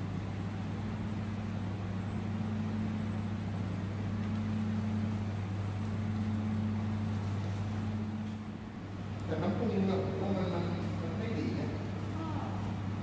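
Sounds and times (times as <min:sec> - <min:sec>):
vehicle engine hum: 0:00.0 - 0:13.0.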